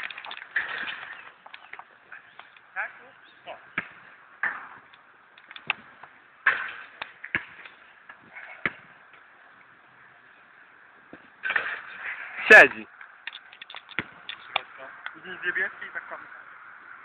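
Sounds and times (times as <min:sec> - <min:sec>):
basketball bouncing on hard court: 0:07.3 - 0:07.6.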